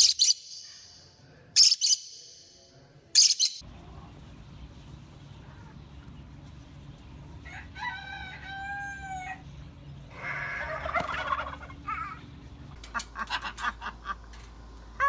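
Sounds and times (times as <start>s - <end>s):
rooster crowing: 7.4s - 9.5s, 10.1s - 11.6s.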